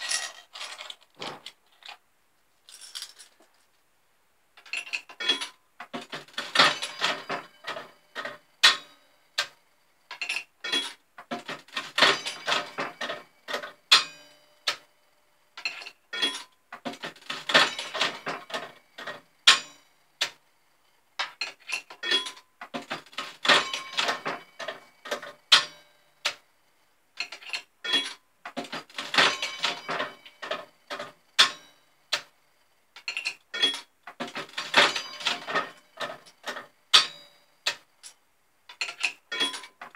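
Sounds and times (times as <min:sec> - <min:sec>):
slot machine reels clicking and clattering: 0:04.7 - 0:09.6, 0:10.2 - 0:14.8, 0:15.6 - 0:20.4, 0:21.5 - 0:26.4, 0:27.2 - 0:31.7, 0:33.0 - 0:39.9.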